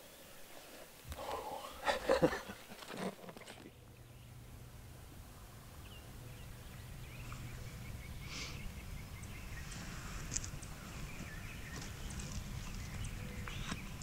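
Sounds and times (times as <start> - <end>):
songbird chirps: 0.0 - 14.0
low steady rumble: 3.6 - 14.0.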